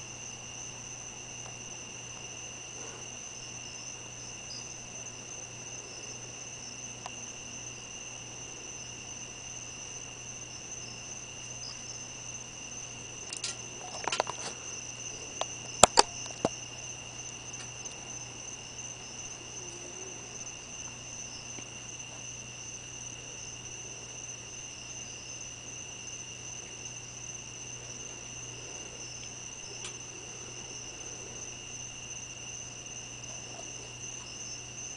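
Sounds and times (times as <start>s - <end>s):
night insects trilling: 0.0s - 34.9s
sharp clicks and knocks: 13.3s - 14.6s, 15.4s - 16.6s.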